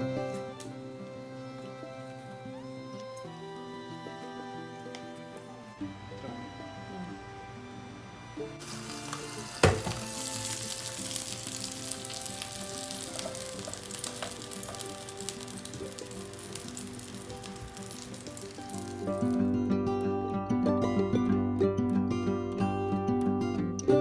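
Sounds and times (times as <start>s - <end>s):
wrap sizzling in sandwich press: 8.6s - 19.5s.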